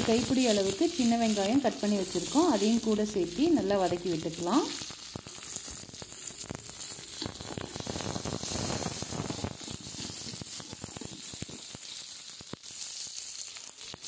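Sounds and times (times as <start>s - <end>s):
shallots sizzling in hot oil: 0.0s - 14.0s.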